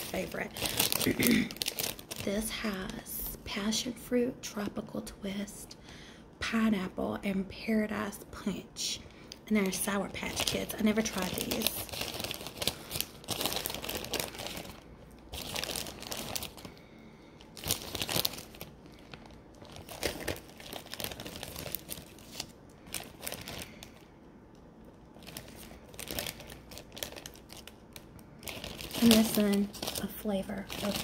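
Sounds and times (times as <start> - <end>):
plastic bag crinkling: 0.0 - 3.1, 9.3 - 24.2, 24.8 - 31.0.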